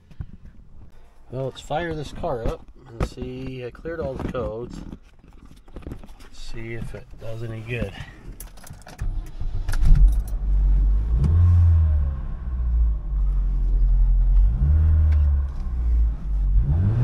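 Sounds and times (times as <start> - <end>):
car engine starting and revving: 9.0 - 17.0.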